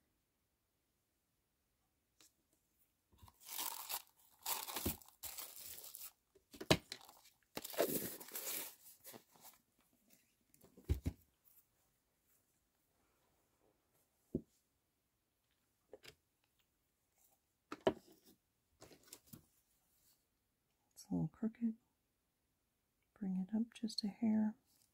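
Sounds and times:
plastic wrap crinkling: 3.2 - 6.2, 6.8 - 9.2.

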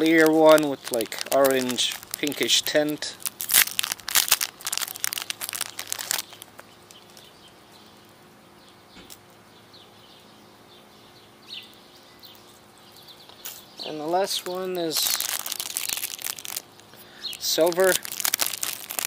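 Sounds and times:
plastic bag crinkling: 0.0 - 7.3, 14.2 - 19.0.

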